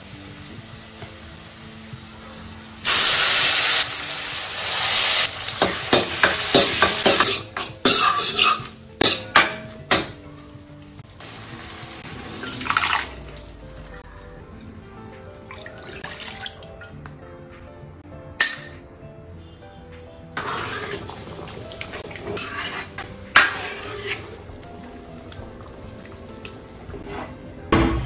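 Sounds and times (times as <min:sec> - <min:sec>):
spices sizzling in hot oil: 0:00.0 - 0:14.1, 0:20.4 - 0:25.9
ladle scraping a steel pan: 0:07.2 - 0:09.3, 0:20.4 - 0:24.4, 0:26.9 - 0:27.4.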